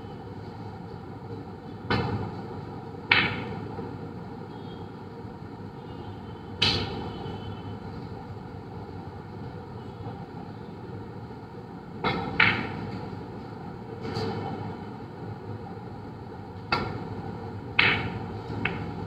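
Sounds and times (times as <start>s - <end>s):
snooker balls clicking: 3.1s - 3.6s, 12.0s - 13.2s, 17.7s - 19.0s.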